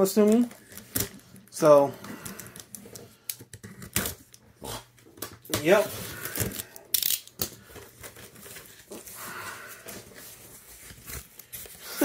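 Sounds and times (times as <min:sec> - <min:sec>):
packaging rustling: 0:00.0 - 0:04.4, 0:05.2 - 0:12.0
tape ripping: 0:05.3 - 0:07.5.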